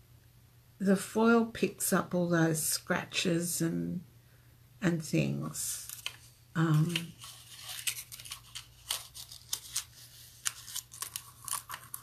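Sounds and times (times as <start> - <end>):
paper snipping and rustling: 5.8 - 12.0.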